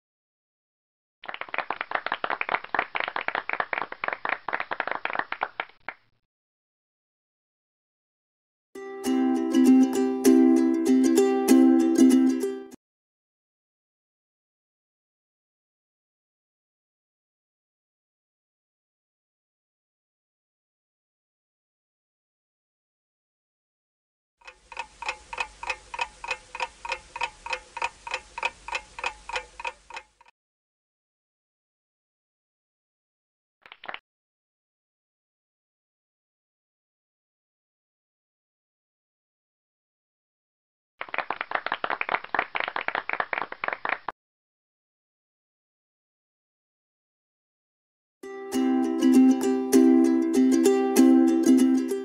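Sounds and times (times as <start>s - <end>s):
small group clapping: 1.2s - 6.1s, 33.6s - 34.0s, 41.0s - 44.2s
clock ticking: 24.4s - 30.3s.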